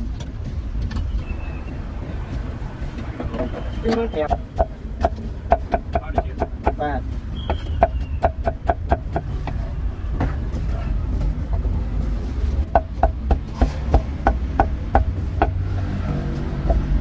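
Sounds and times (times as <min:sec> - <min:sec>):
cleaver chopping on wooden block: 0:03.4 - 0:06.9, 0:07.5 - 0:09.6, 0:12.7 - 0:15.6, 0:16.5 - 0:17.0.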